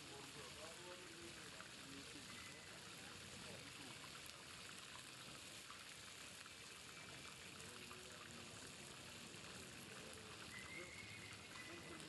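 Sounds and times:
fish deep-frying in oil: 0.0 - 12.0.

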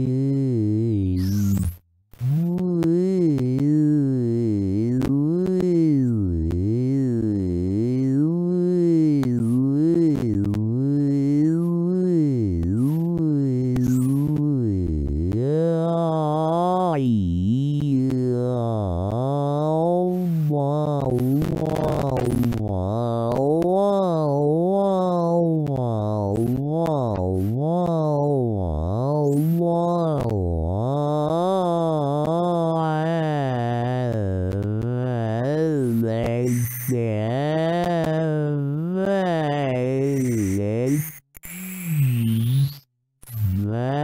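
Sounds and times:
synthetic voice swooping in pitch: 8.2 - 16.9, 17.9 - 41.1, 43.4 - 44.0.

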